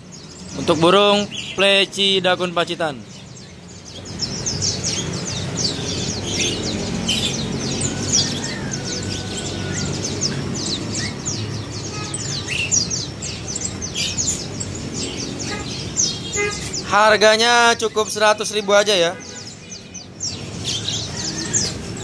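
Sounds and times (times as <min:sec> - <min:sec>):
birds chirping: 0:00.0 - 0:22.0.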